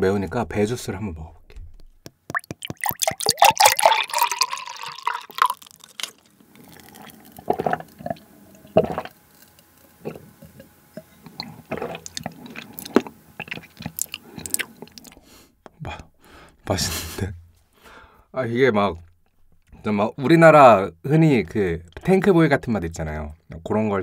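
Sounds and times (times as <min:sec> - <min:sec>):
gulps and swallows: 0:02.3 - 0:09.2, 0:11.2 - 0:15.2
juice pouring into a glass: 0:02.3 - 0:09.5, 0:11.3 - 0:15.2.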